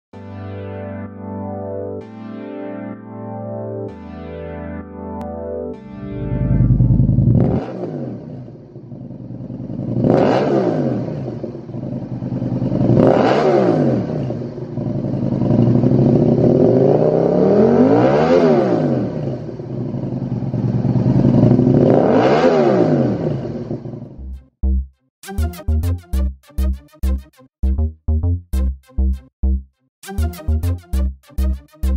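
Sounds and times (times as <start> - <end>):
motorcycle engine revving: 6.1 - 24.1.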